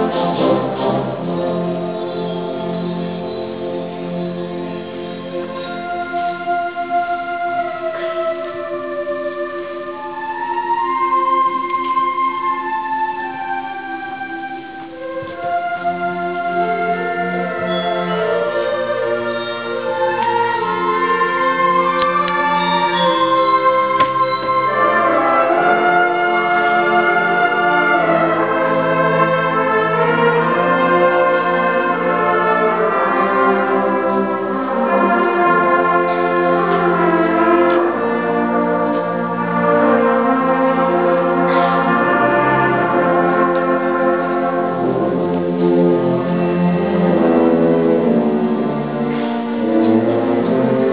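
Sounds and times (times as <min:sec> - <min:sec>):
brass chords: 0:00.0 - 0:50.9
concert band playing: 0:00.0 - 0:50.9.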